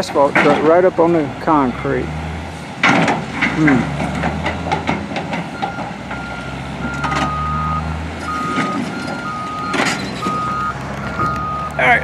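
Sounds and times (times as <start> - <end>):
diesel engines running: 0.0 - 12.0
backup alarms beeping: 5.5 - 11.8.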